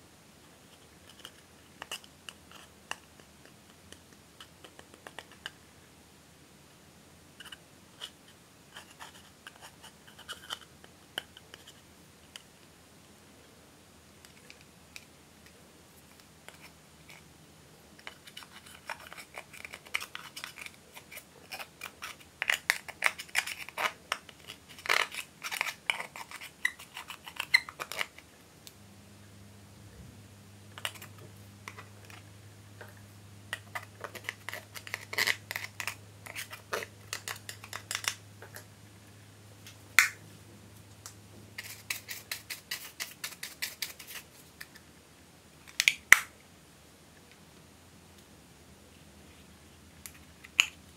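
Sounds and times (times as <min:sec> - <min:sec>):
scissors scraping eyeshadow powder: 0:01.0 - 0:03.1, 0:07.4 - 0:11.8, 0:18.0 - 0:28.2, 0:33.5 - 0:38.2, 0:41.6 - 0:44.2
plastic spatula scraping compact: 0:08.8 - 0:11.8, 0:33.5 - 0:38.6, 0:41.6 - 0:44.2.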